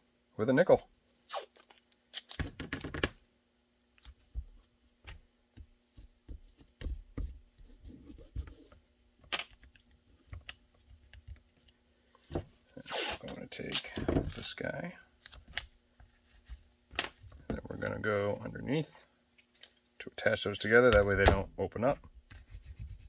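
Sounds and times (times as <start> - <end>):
tape ripping off roll: 1.2 - 3.1.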